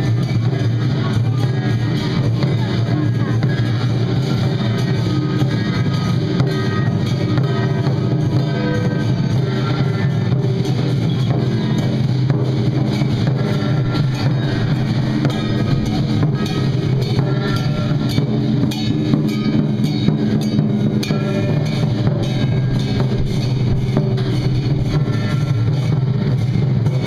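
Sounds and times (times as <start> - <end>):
drums beating: 0.0 - 27.0
gong and cymbal strikes: 0.0 - 27.0
loud melody: 12.4 - 26.8.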